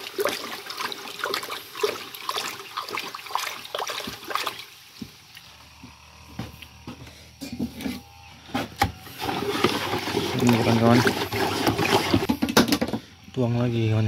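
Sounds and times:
water splashing into barrel: 0:00.0 - 0:05.4, 0:09.2 - 0:12.7
water trickling: 0:00.0 - 0:05.6.

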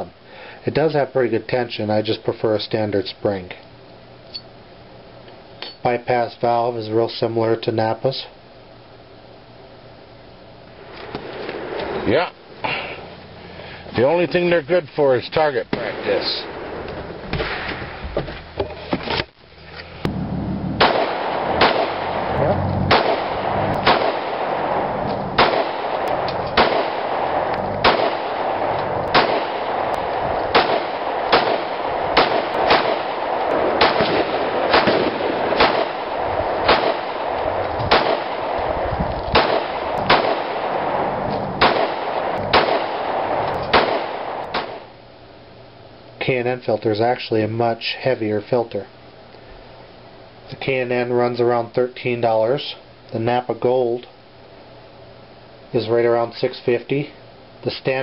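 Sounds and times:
gunshots: 0:15.5 - 0:18.0, 0:20.0 - 0:44.9.

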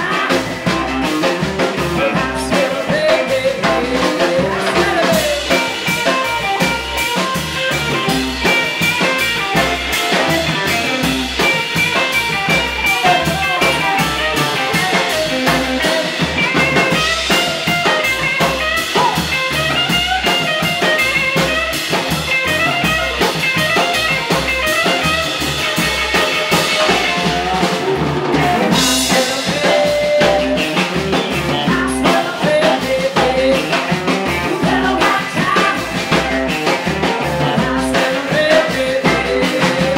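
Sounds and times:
woman singing lead vocal: 0:00.0 - 0:05.9, 0:27.2 - 0:36.4, 0:37.1 - 0:39.9
drum kit beat: 0:00.0 - 0:39.9
electric guitar: 0:00.0 - 0:39.9
upright bass: 0:00.0 - 0:39.9.

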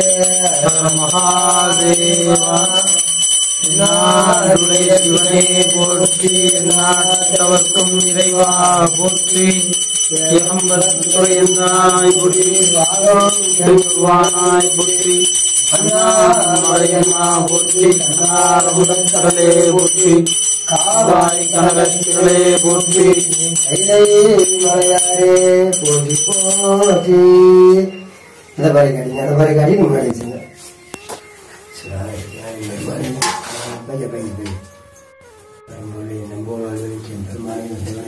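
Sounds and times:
bell ringing: 0:00.0 - 0:28.2
men chanting a hymn: 0:00.0 - 0:30.6.

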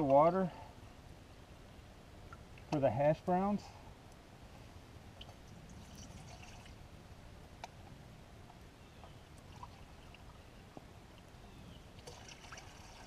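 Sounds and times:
water pouring into metal pot: 0:05.8 - 0:06.8.

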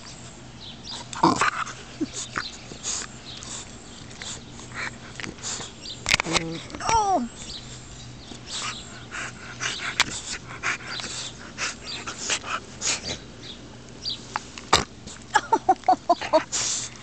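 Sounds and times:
puppy huffing and snuffling: 0:00.9 - 0:06.8, 0:07.5 - 0:13.3.

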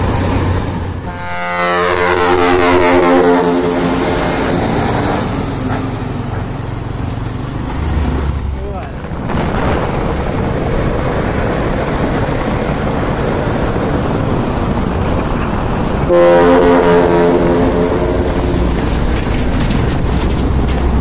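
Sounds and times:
traffic noise: 0:00.0 - 0:21.0
truck air horn: 0:01.1 - 0:04.6, 0:16.1 - 0:18.9.

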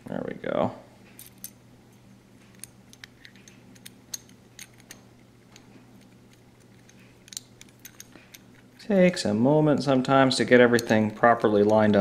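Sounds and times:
low steady hum: 0:00.0 - 0:12.0
small metallic clicks: 0:02.4 - 0:08.8.

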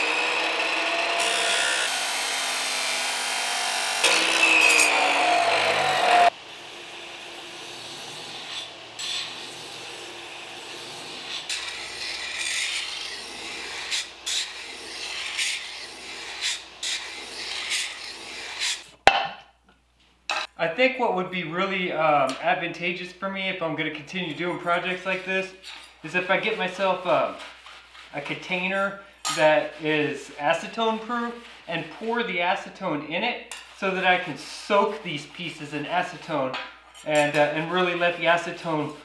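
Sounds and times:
belt grinder running: 0:00.0 - 0:18.8
steel scraping on grinder belt: 0:00.0 - 0:18.8
cut-off saw grinding steel: 0:00.0 - 0:18.9.

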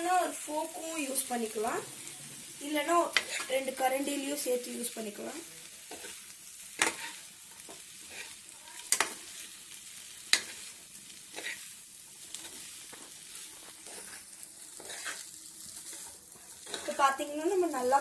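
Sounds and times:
noodles sizzling in pan: 0:00.0 - 0:18.0
utensils clacking against pan: 0:06.8 - 0:09.4, 0:10.3 - 0:17.2.

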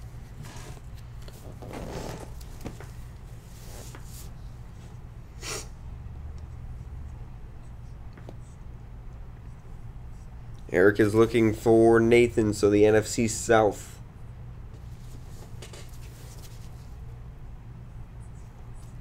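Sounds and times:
steady low hum: 0:00.0 - 0:19.0
short hiss: 0:05.4 - 0:05.7.

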